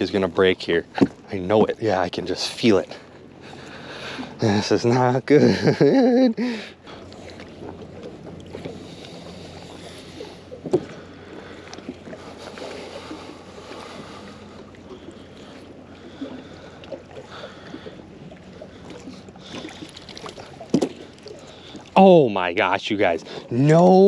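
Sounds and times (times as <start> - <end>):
water splashing and dripping: 6.9 - 24.0.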